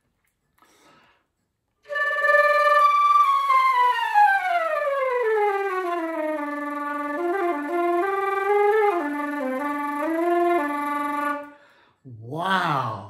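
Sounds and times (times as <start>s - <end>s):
flute flutter-tonguing: 1.9s - 11.5s.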